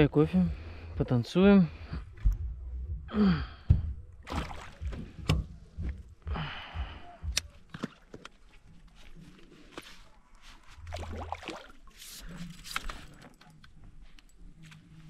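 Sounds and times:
person sighing: 3.1 - 3.7, 6.3 - 7.4.

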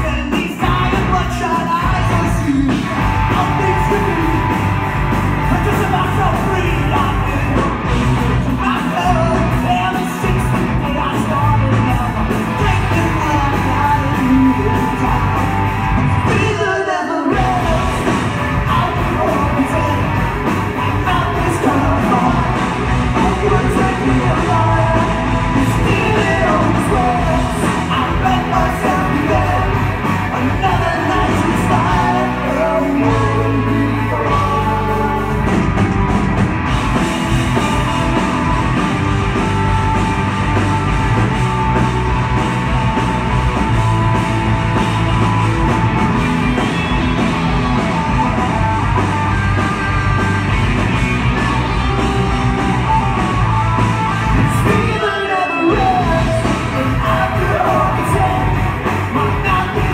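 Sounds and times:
person singing: 0.0 - 4.8, 5.4 - 35.7, 51.4 - 59.9
bass guitar: 0.0 - 59.9
drum kit: 0.0 - 59.9
electric guitars: 0.0 - 59.9.

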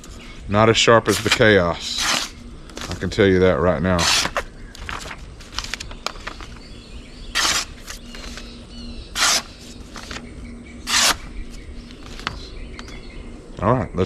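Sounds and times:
birds chirping: 0.0 - 14.0
knife ripping through paper: 1.0 - 3.1, 3.9 - 5.9, 7.3 - 8.4, 9.1 - 11.4.

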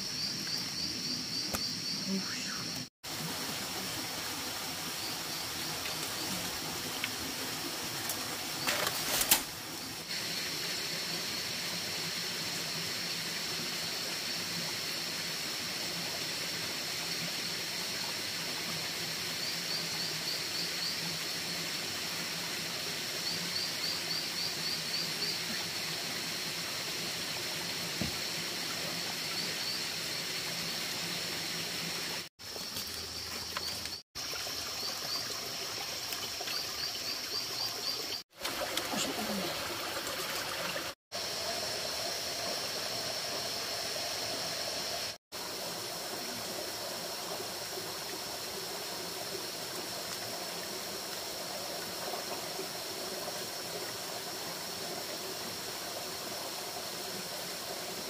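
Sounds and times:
water trickling: 32.4 - 41.0.

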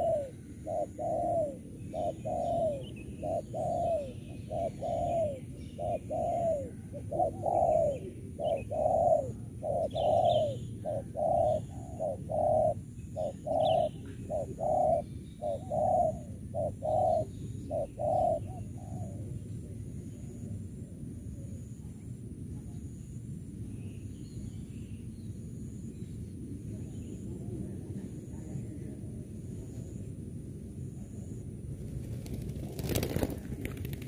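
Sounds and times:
doves cooing: 0.0 - 19.8, 32.1 - 34.0
small birds chirping: 0.0 - 20.5.

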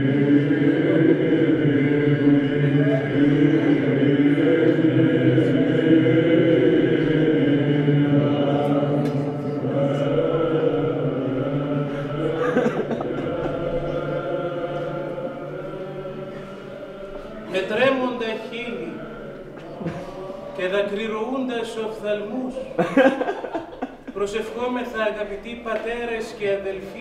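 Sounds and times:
low drone: 0.0 - 17.5
voices chanting slow melody: 0.0 - 24.2.

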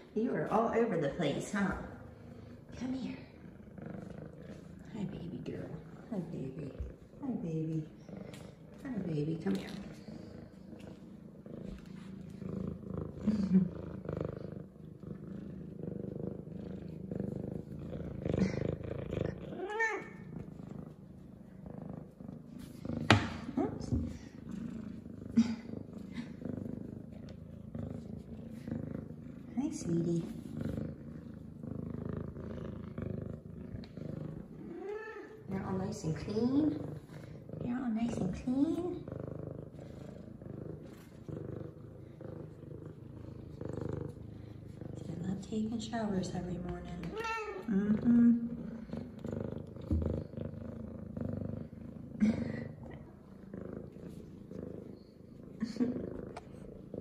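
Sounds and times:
cat purring: 0.0 - 57.0
cat meow: 47.1 - 47.7.

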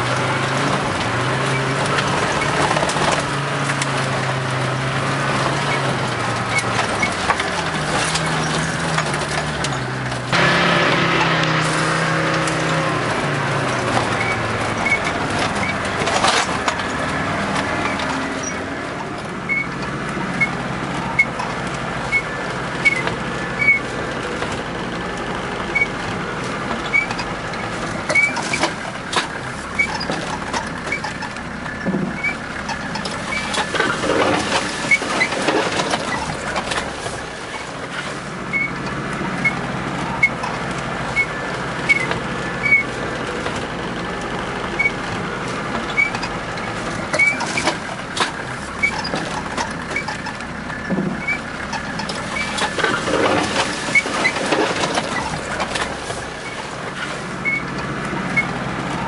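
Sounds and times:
car body rattling over bumps: 0.0 - 59.0
car engine running: 0.0 - 59.0.

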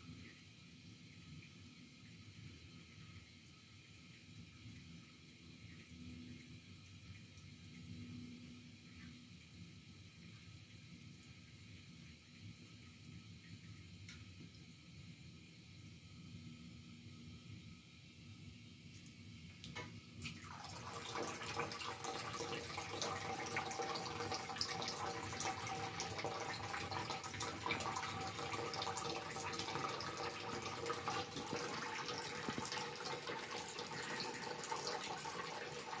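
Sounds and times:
faucet water splashing into sink: 19.6 - 36.0.

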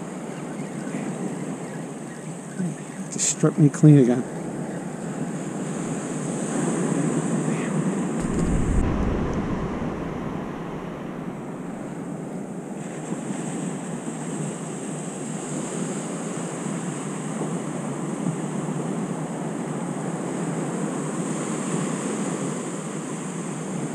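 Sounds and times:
ocean surf washing: 0.0 - 23.9
wind buffeting microphone: 4.1 - 14.8.

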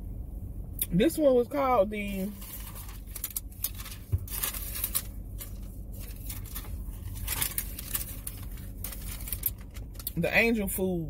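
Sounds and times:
paper receipt rustling: 2.0 - 10.2.

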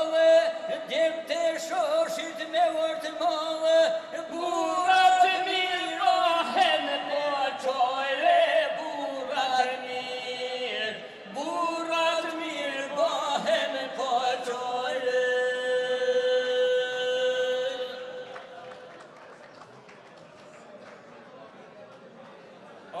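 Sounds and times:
men singing unaccompanied: 0.0 - 18.1.

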